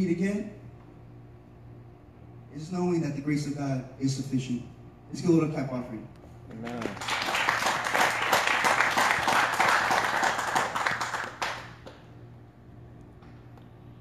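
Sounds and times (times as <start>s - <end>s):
crowd clapping: 6.6s - 12.1s.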